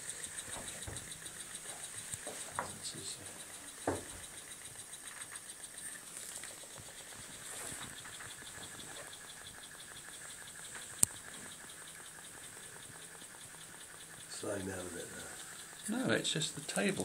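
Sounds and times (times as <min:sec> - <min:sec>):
stirling engine ticking: 0:00.0 - 0:17.0
sharp click: 0:10.8 - 0:11.3.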